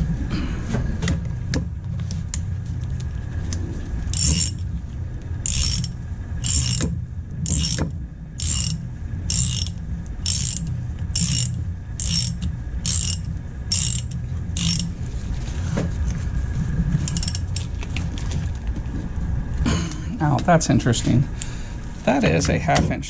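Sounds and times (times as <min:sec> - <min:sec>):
steady low rumble: 0:00.0 - 0:23.0
socket ratchet clicking: 0:04.2 - 0:04.6, 0:05.5 - 0:06.9, 0:07.5 - 0:14.9, 0:17.1 - 0:17.7.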